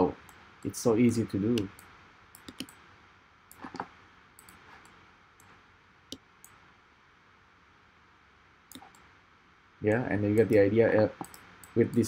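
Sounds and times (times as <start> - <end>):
computer mouse clicks: 1.5 - 2.8, 3.5 - 6.6, 8.7 - 9.1, 9.9 - 10.6, 11.2 - 12.0.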